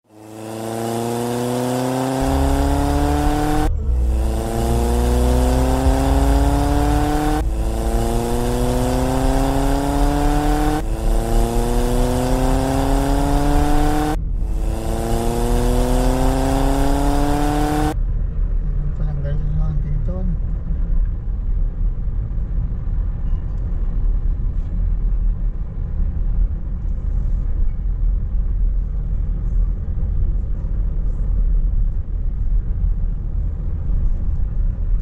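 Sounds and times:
car engine accelerating: 0.0s - 18.0s
low rumble: 2.2s - 35.0s.

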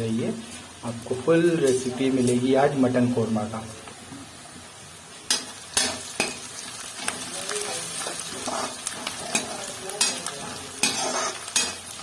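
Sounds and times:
onions sizzling in oil: 0.0s - 12.0s
spatula stirring and scraping: 5.8s - 12.0s.

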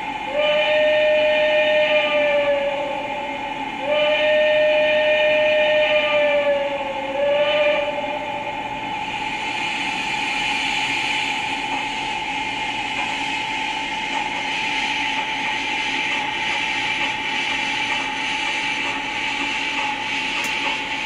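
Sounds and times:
constant whine: 7.8s - 21.0s
model train speaker hiss: 9.1s - 21.0s.

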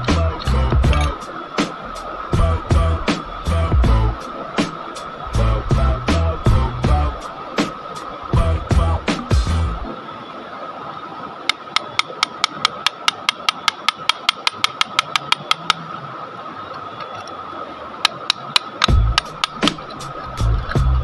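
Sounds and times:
steady high tone: 0.0s - 1.4s
hammer tapping on rock: 11.5s - 15.8s, 18.1s - 20.0s.

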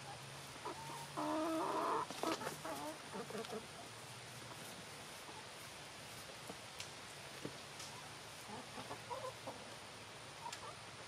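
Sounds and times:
chickens clucking: 0.0s - 5.8s, 7.8s - 10.8s.

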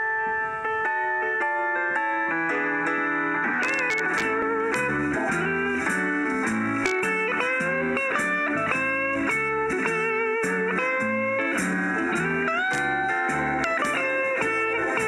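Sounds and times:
sliding guitar melody: 0.0s - 15.0s
bass: 3.6s - 15.0s.

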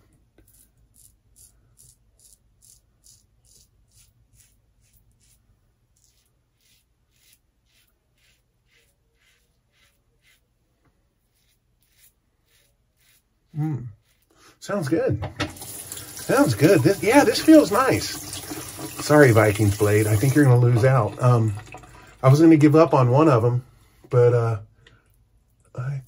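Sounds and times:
razor scratching stubble: 0.4s - 10.5s, 11.2s - 14.3s, 15.7s - 20.6s.

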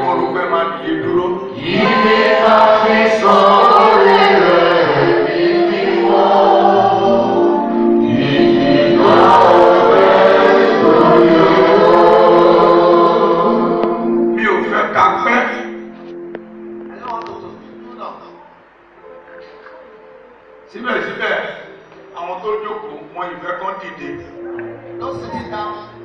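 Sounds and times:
choir and congregation singing hymn: 0.0s - 15.8s.

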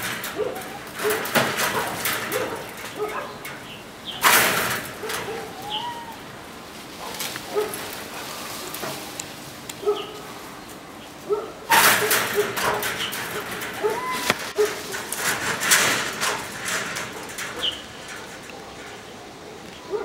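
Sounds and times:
loud rattling noise: 0.0s - 5.7s, 11.7s - 19.5s
distant dogs barking: 0.2s - 20.0s
bird calling: 5.3s - 6.4s.

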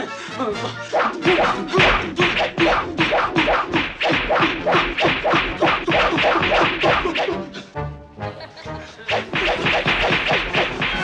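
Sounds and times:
hand slaps: 1.2s - 7.3s.

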